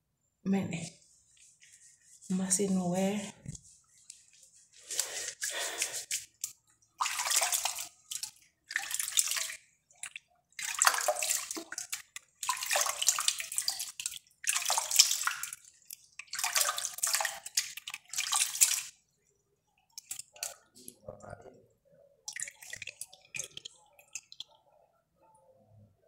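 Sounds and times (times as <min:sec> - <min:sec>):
hand splashing soapy water: 0:04.8 - 0:19.0, 0:22.2 - 0:24.6.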